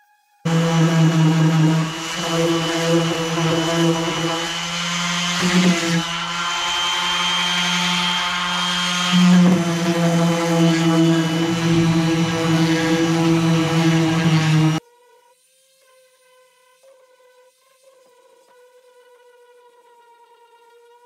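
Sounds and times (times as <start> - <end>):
power tool motor humming: 0.5 - 14.8.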